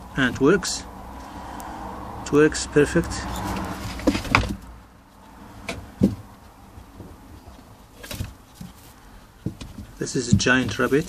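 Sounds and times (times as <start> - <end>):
dull knocks and bumps: 3.5 - 4.7, 5.6 - 11.0.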